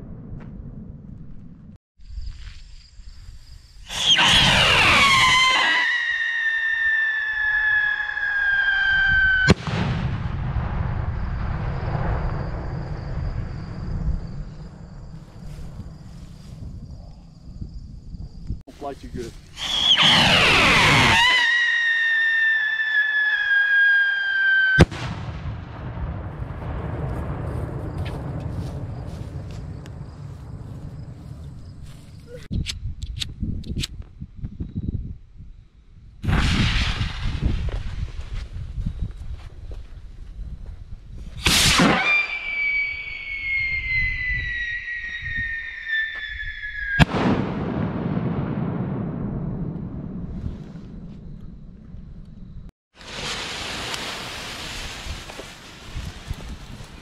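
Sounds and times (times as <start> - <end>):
whistle rocket whistling: 3.9 - 9.6, 19.5 - 24.9, 41.4 - 47.4
rocket bursting bang: 3.9 - 14.4, 19.6 - 30.6, 36.2 - 38.1, 41.4 - 51.1.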